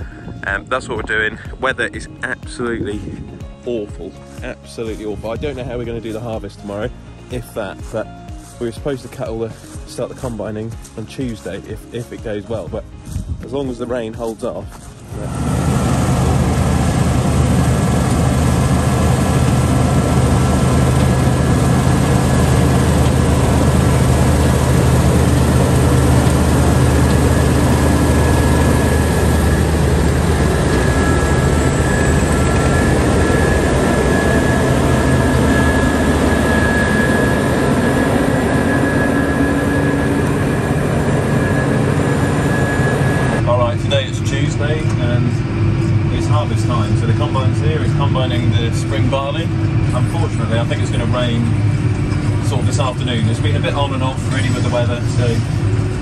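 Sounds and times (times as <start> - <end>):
combine harvester engine drone: 14.8 - 56.0
thin high whine: 14.9 - 44.6.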